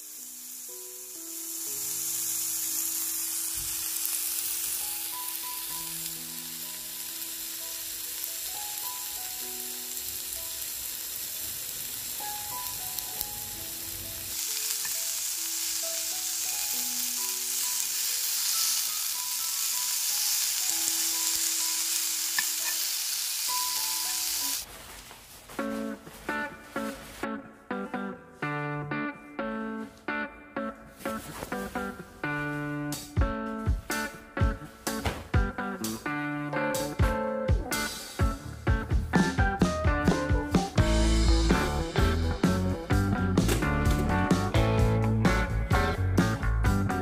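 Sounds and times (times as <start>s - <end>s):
meat sizzling on a grill pan: 0.0s - 24.6s
soft background melody: 0.0s - 24.7s, 25.4s - 47.0s.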